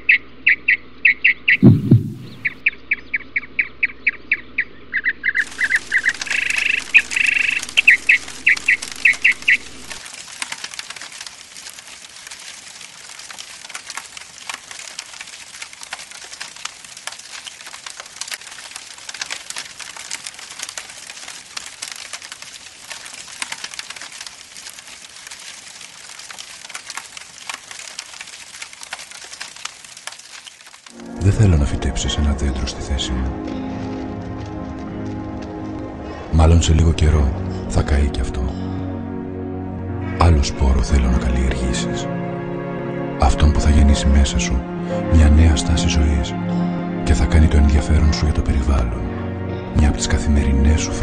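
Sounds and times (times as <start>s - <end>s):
bird chirping: 0.0s - 10.0s
fire crackling: 1.6s - 2.6s, 5.4s - 36.7s
low thud: 1.6s - 2.6s.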